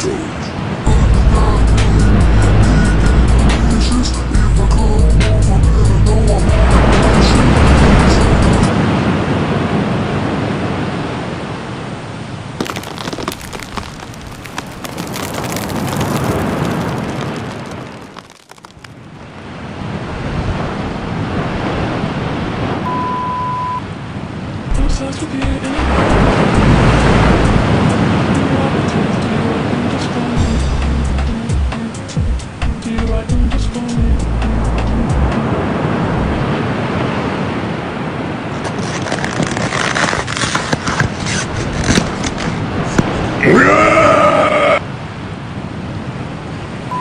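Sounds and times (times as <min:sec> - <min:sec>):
high beep tone: 0:22.9 - 0:23.8
scraping and clicking: 0:38.6 - 0:42.6.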